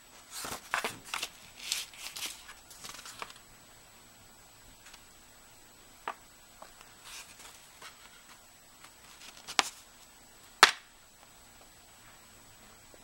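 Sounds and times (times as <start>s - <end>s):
paper rustling: 0.3s - 3.4s, 6.6s - 10.1s.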